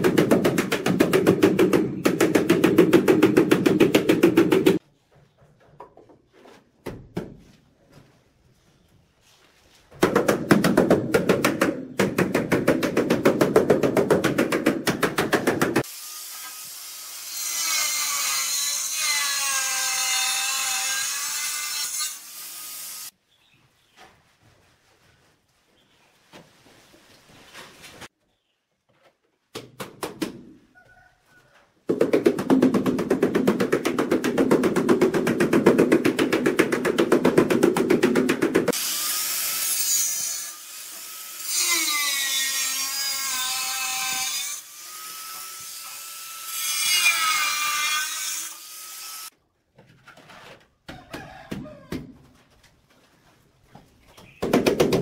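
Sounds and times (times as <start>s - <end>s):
angle grinder cutting tile: 15.8s - 23.1s, 38.6s - 49.3s.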